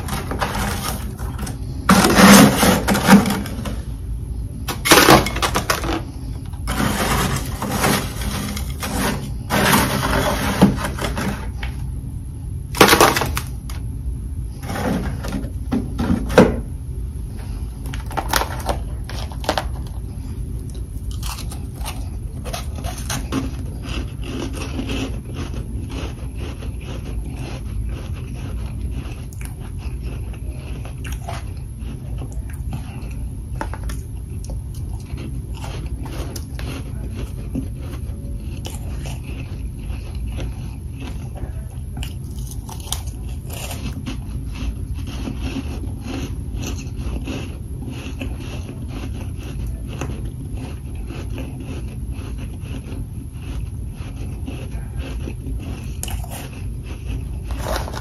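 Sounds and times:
metal spatula scraping frost: 0.0 - 3.8, 4.7 - 11.6, 14.6 - 15.5
crisp crunches of chewing frost: 17.4 - 58.0.

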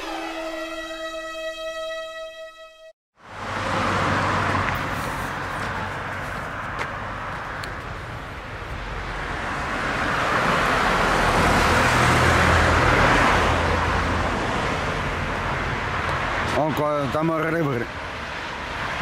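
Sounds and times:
vehicle driving past: 3.2 - 7.3, 8.3 - 16.5.

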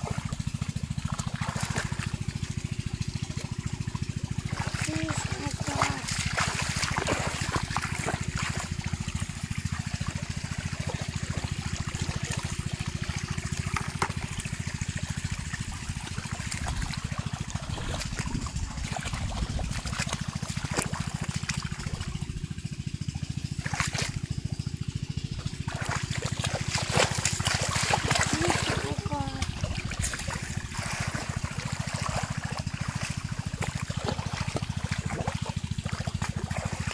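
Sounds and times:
water splashing and trickling: 0.0 - 36.9
low rumble: 15.4 - 23.2.

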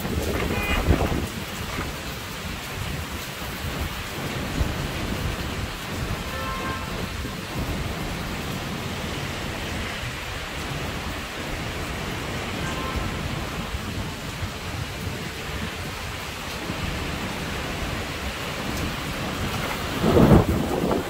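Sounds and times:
heavy rain pouring: 0.0 - 21.0.

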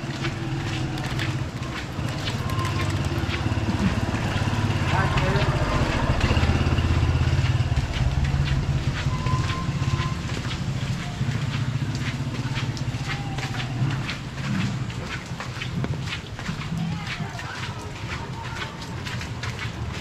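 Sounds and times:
motorcycle engine running: 0.1 - 12.6.

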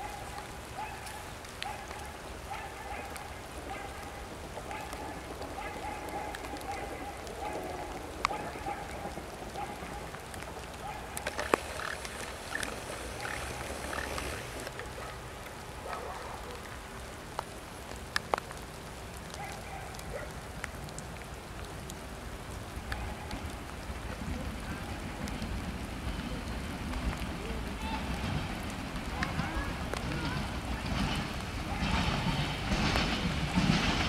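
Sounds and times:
sharp drips tapping: 0.0 - 14.8
steady rain falling: 0.0 - 34.0.

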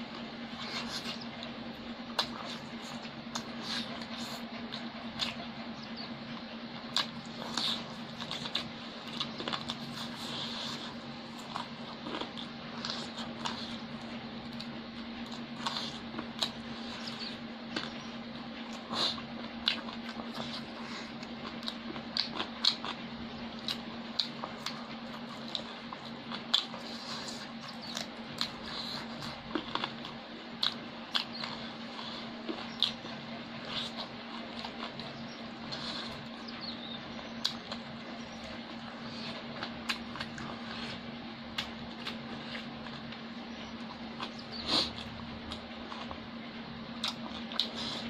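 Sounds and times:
person chewing food: 0.0 - 48.0
steady low hum: 0.0 - 48.0.

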